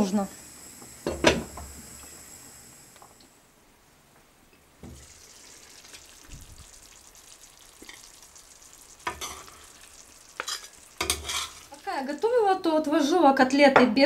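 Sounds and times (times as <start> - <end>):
food sizzling in a frying pan: 0.0 - 3.2, 4.8 - 13.3
metal spoon scraping a pan: 9.1 - 9.6, 10.4 - 11.7.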